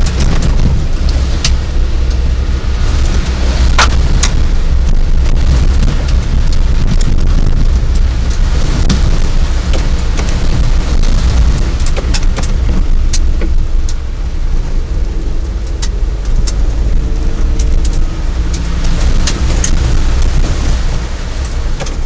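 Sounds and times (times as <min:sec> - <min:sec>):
gravel clicking against vehicle: 0:00.0 - 0:22.0
vehicle rumbling on rough road: 0:00.0 - 0:22.0.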